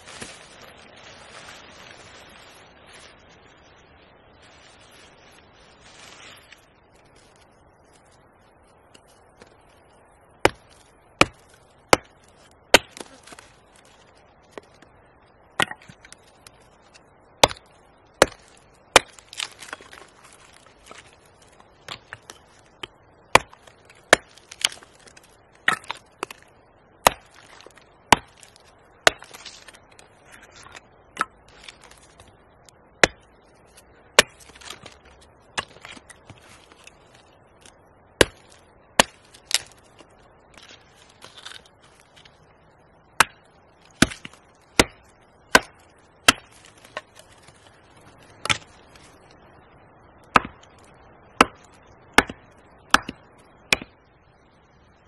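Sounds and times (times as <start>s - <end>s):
hatchet splitting wood: 10.4s - 13.4s, 44.0s - 47.5s, 50.3s - 53.9s.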